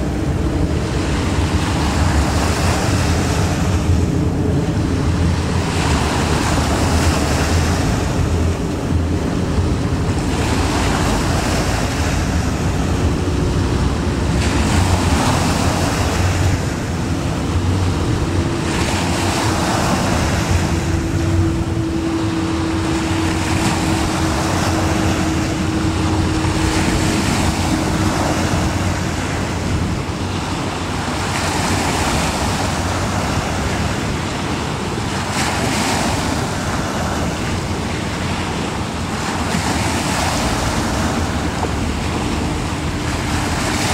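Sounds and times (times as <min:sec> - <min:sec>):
low rumble: 0:00.0 - 0:31.1
sea water washing in: 0:00.0 - 0:43.9
wind buffeting microphone: 0:00.0 - 0:43.9.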